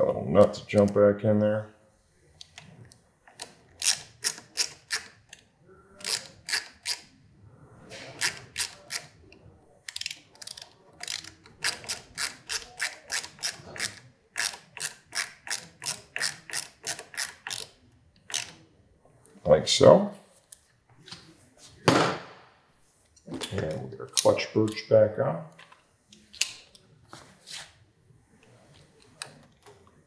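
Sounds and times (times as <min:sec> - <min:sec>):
ratcheting screwdriver clicking: 0:03.3 - 0:05.4, 0:06.0 - 0:07.1, 0:09.9 - 0:18.6.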